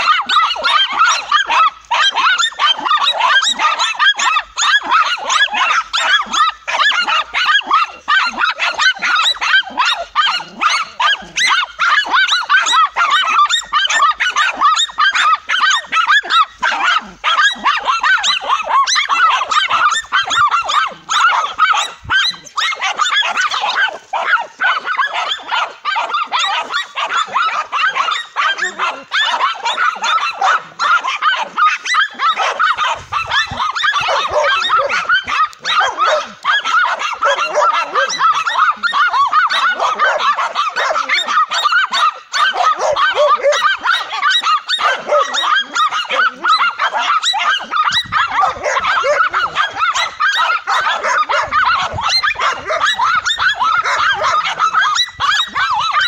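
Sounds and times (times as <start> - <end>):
dogs barking and yapping: 0.0 - 56.0.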